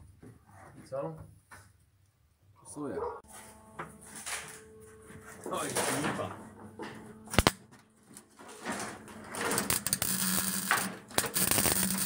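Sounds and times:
welder crackling: 7.3 - 7.6, 8.5 - 12.0
welding arc striking crack: 7.3 - 7.6, 9.4 - 12.0.

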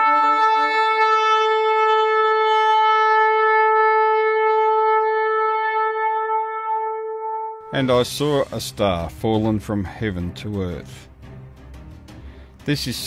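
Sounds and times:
long horn blast: 0.0 - 9.0.

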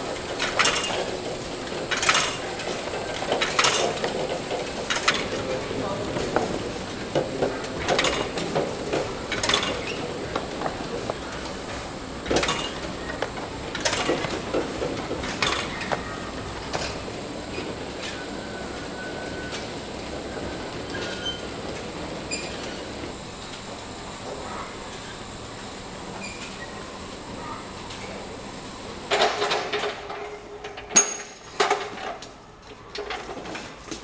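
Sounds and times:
conveyor faint high whine: 0.0 - 31.5
sharp clacks of trays: 0.3 - 17.1, 29.1 - 34.0.

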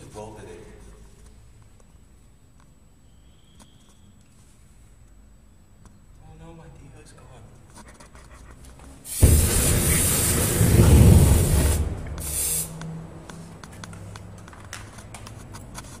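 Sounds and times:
aerosol flame jet hissing roar: 9.1 - 12.8.

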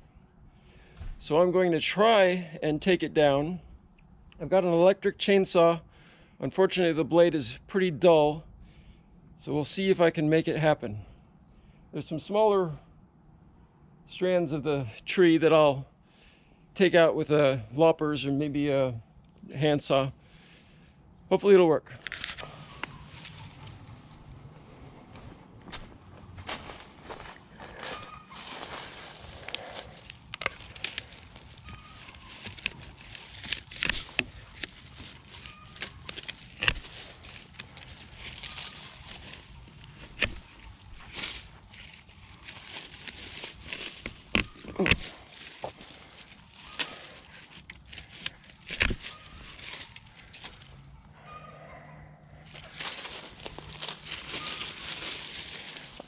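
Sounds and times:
rustling of dry leaves: 22.0 - 51.0, 52.3 - 56.0
loppers snipping branches: 29.5 - 50.7.

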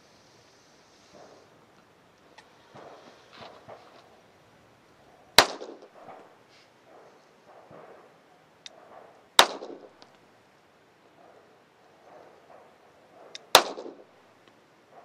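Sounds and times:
pistol shots: 5.4 - 6.3, 8.7 - 10.0, 12.2 - 14.1.

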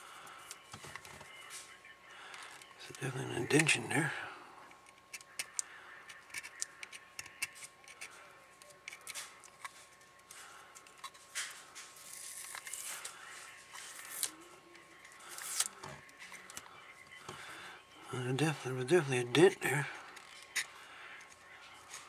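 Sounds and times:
screwdriver scratching plastic: 4.9 - 8.1.

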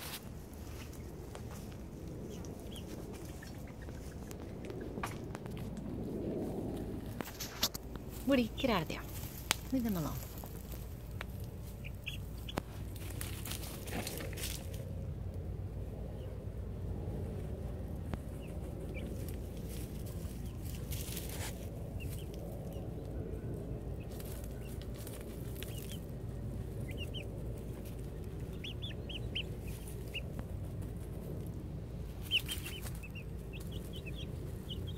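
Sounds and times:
rustling in dry dirt: 0.0 - 34.9
chicks peeping: 0.1 - 5.7, 9.6 - 14.7, 17.4 - 34.9.

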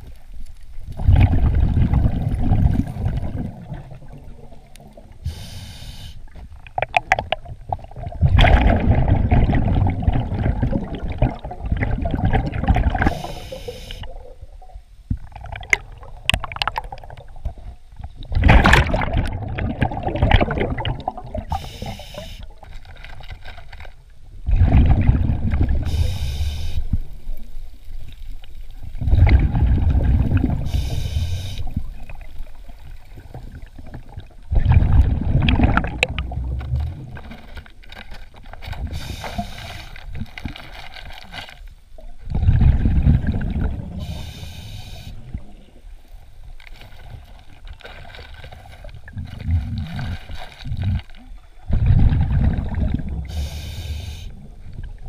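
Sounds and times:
diver exhaling gurgling bubbles: 0.9 - 5.6, 6.6 - 14.5, 18.2 - 22.6, 24.4 - 26.9, 28.9 - 32.2, 32.9 - 37.6, 42.3 - 44.4, 48.5 - 55.0
regulator inhalation hiss: 5.2 - 6.4, 13.1 - 14.1, 21.5 - 22.5, 25.9 - 27.0, 30.6 - 31.8, 38.9 - 40.0, 44.0 - 45.3, 53.2 - 54.4.

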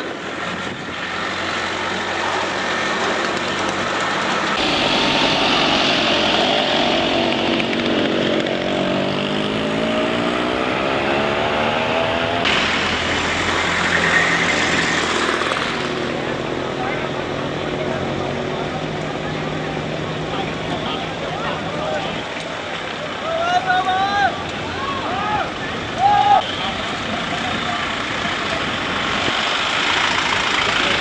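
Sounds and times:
passing car engines: 0.0 - 31.0.

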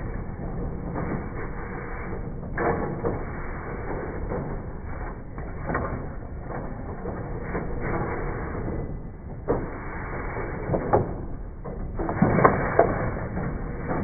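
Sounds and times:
machine rollers whirring: 0.0 - 14.0.

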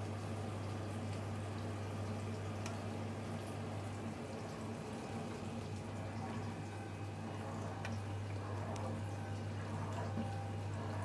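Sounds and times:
dishwasher pump humming: 0.0 - 11.0
water swishing in dishwasher: 4.1 - 11.0.

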